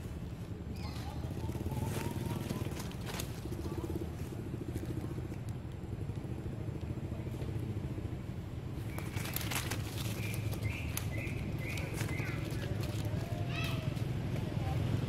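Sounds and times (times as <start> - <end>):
monkeys running on dry leaves: 0.0 - 5.6, 8.7 - 14.7
monkey squeaking: 8.8 - 13.8.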